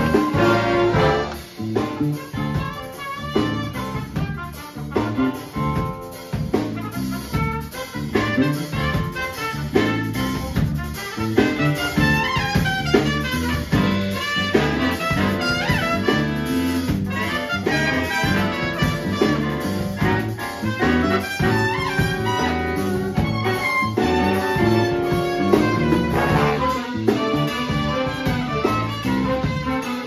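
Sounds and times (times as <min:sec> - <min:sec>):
big band playing swing: 0:00.0 - 0:30.0.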